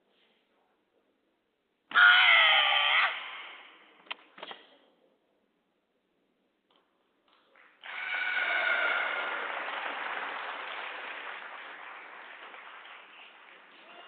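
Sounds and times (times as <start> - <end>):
crowd shouting and cheering: 7.8 - 9.8.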